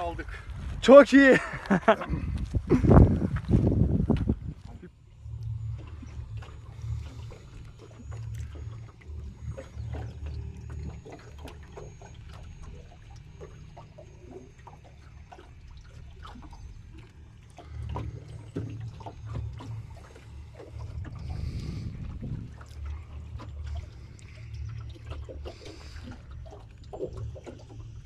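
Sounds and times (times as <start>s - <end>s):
wind buffeting microphone: 0.0s - 12.1s, 17.9s - 25.0s
water splashing around oars: 1.5s - 28.0s.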